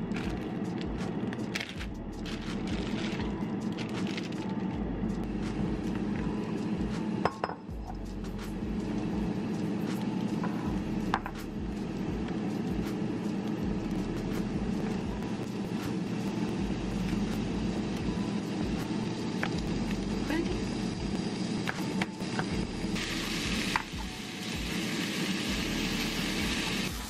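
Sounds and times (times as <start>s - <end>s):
steady low hum: 0.0s - 24.1s
dishes and utensils clinking: 7.2s - 7.7s.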